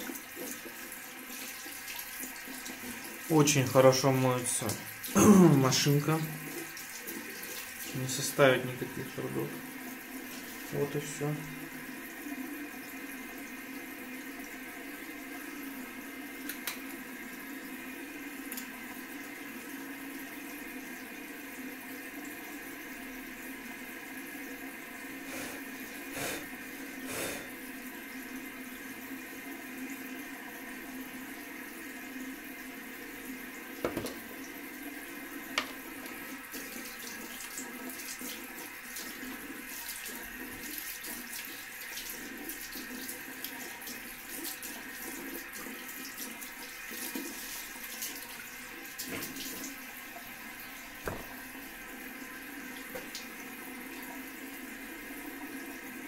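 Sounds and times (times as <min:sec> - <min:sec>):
tap water running into sink: 0:00.0 - 0:56.0
knocks and clatters at basin: 0:33.8 - 0:34.2.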